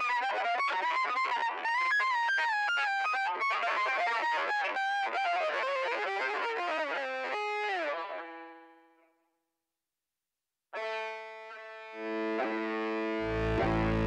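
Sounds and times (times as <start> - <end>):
electric bass with octave effect: 12.9 - 14.0.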